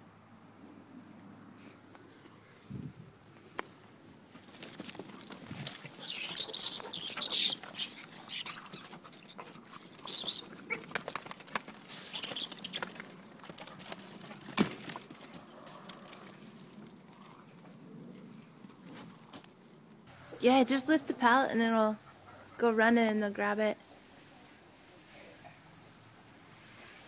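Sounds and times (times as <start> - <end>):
dogs scrabbling and rustling: 4.2 - 19.5.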